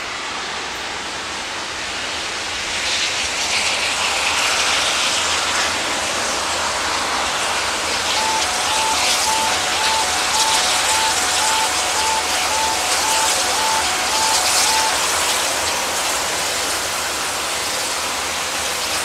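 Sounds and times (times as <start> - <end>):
steam locomotive rushing exhaust: 0.0 - 19.0
two-note alternating tone: 8.2 - 15.3.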